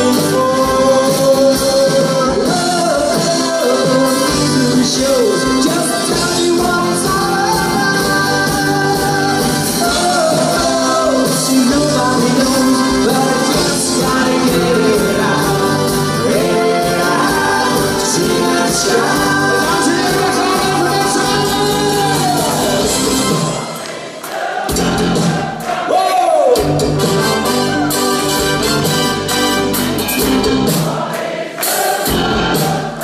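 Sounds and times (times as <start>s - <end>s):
man singing: 0.0s - 23.0s
live pop band playing: 0.0s - 33.0s.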